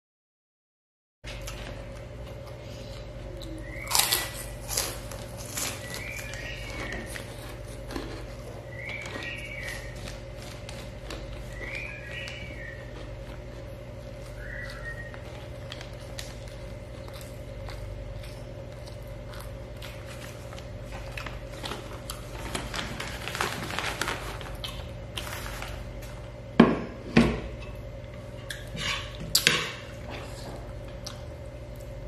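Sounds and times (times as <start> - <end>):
paper wrapping rustling: 20.0 - 26.2.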